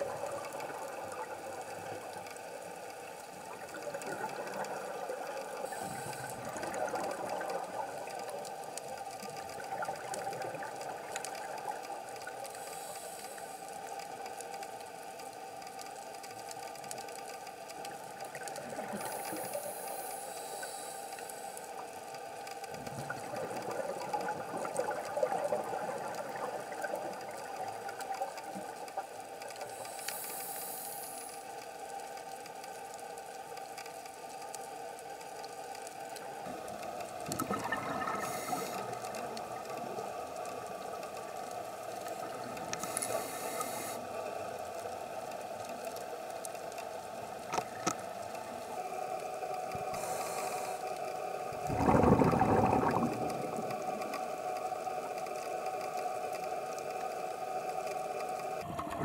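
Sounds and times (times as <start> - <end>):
watery underwater rumble: 0.0 - 13.8, 22.7 - 30.8, 36.2 - 45.9, 49.7 - 55.8, 58.6 - 59.0
regulator breathing hiss: 5.6 - 6.5, 12.5 - 13.8, 18.9 - 21.8, 29.6 - 31.6, 38.2 - 39.4, 42.7 - 44.3, 49.8 - 51.4.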